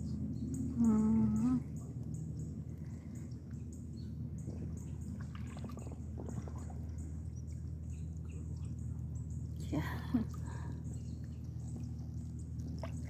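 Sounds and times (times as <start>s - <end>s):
steady low hum: 0.0s - 13.0s
paddle strokes splashing water: 4.5s - 7.2s.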